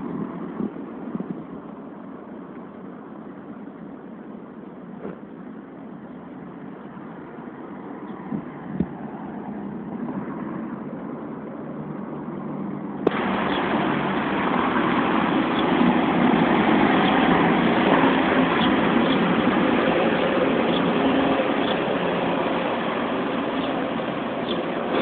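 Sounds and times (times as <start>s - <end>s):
engine running: 9.5s - 25.0s.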